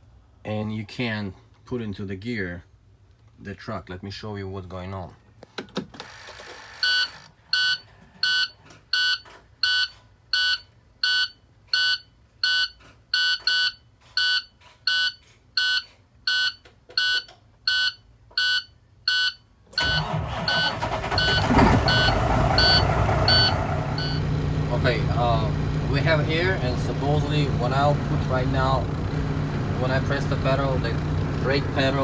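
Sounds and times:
dashboard warning beeps: 6.8s - 24.3s
diesel engine running: 19.8s - 32.0s.

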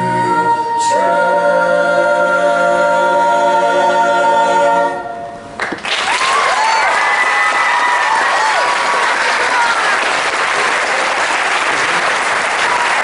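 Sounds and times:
choir singing a cappella: 0.0s - 5.4s
audience applause: 5.6s - 13.0s.

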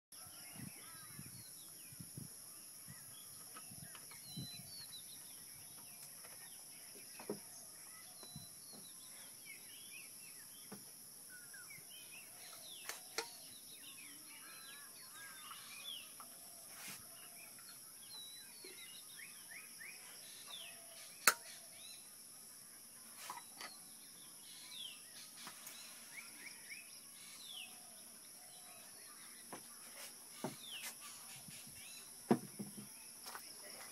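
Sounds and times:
birds chirping and calling: 0.2s - 22.2s.

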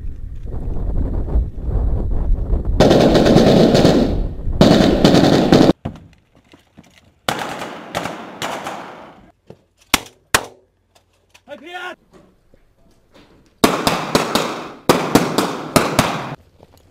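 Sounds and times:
low wind rumble: 0.0s - 5.7s
automatic gunfire bursts: 2.8s - 5.8s, 13.6s - 16.4s.

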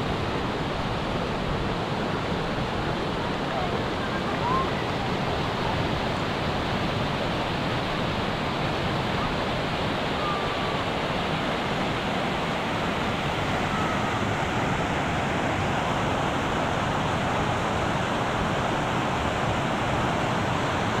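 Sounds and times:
stream rushing over rocks: 0.0s - 21.0s.

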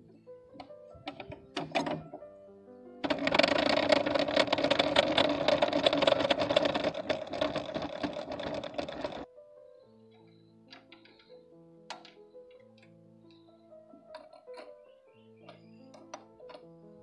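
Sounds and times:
table saw running: 3.0s - 9.3s.

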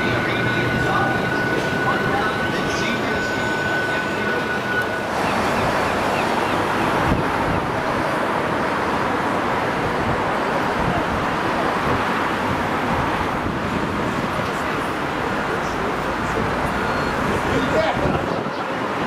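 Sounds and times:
wind on microphone: 5.1s - 8.1s, 9.4s - 14.6s.

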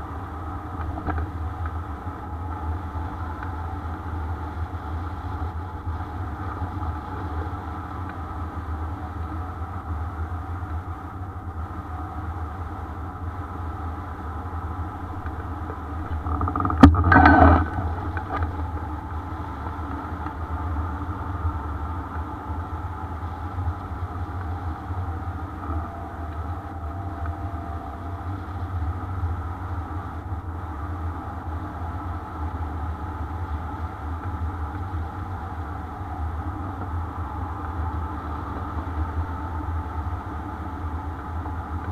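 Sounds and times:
wind rushing on camera: 0.0s - 41.9s.

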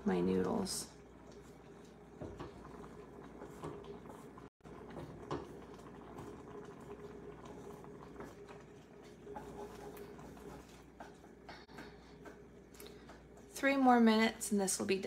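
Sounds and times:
water bubbling in a pan: 0.0s - 13.8s.

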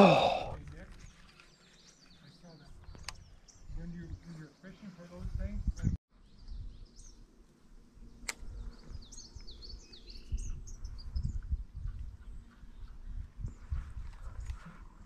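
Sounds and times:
small birds chirping: 0.1s - 15.0s
sharp click: 8.2s - 8.5s.

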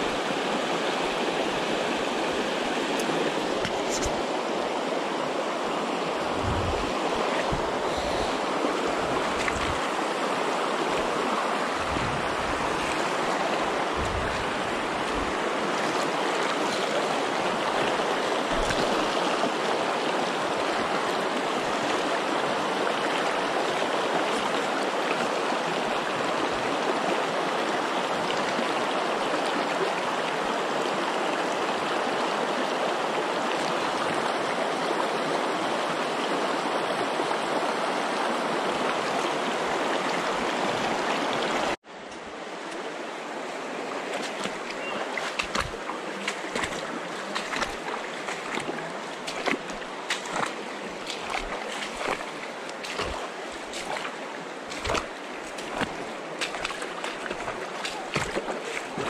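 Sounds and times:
river rushing: 0.0s - 59.0s
low thumps: 6.4s - 6.9s, 14.0s - 14.6s.

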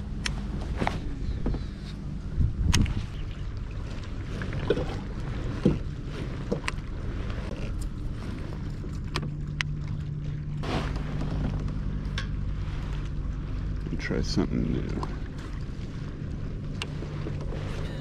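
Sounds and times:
wind on microphone: 0.0s - 8.5s
low steady hum: 0.0s - 18.0s
water lapping against kayak hull: 0.0s - 18.0s.

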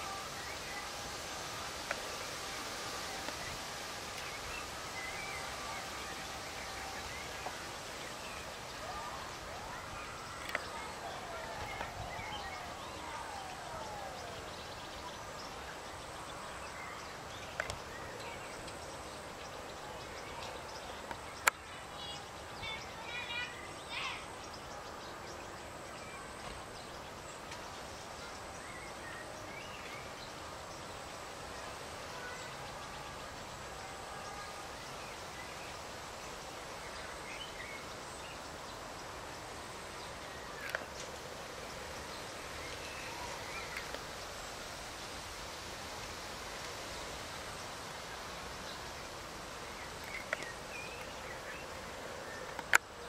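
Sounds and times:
outdoor background hiss: 0.0s - 53.0s.

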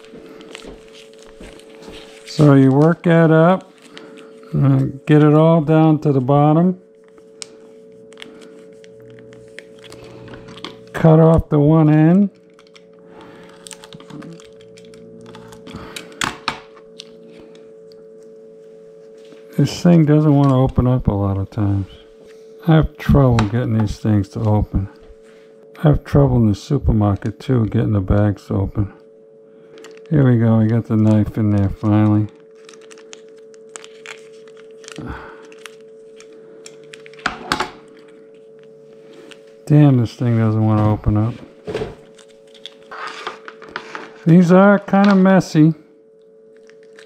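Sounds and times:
faint steady hum: 0.0s - 47.0s
plastic pouch crinkling: 12.3s - 16.3s, 29.7s - 37.3s, 42.0s - 44.4s, 46.5s - 47.0s.

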